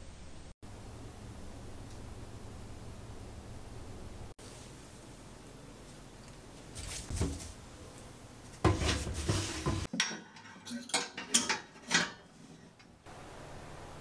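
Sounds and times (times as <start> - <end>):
household items clattering: 8.5 - 13.0.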